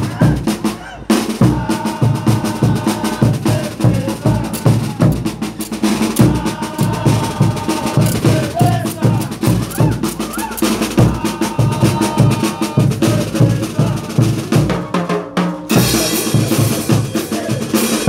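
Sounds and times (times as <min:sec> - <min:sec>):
bass drums beat: 0:00.0 - 0:18.0
snare drums: 0:00.0 - 0:18.0
hand cymbals clashing: 0:02.5 - 0:12.5, 0:15.7 - 0:18.0.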